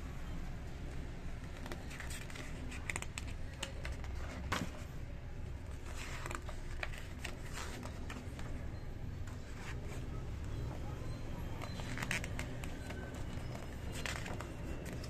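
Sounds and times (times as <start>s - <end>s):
magazine pages rustling: 1.4s - 8.7s, 11.6s - 15.0s.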